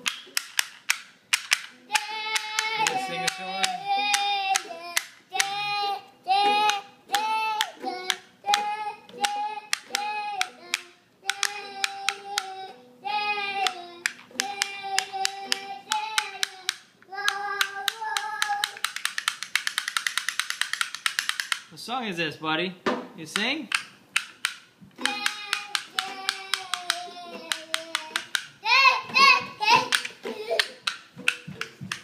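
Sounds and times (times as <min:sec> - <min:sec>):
toddler singing: 0:01.8 - 0:19.0, 0:25.0 - 0:31.0
rhythmic hand-clapping: 0:23.4 - 0:28.6.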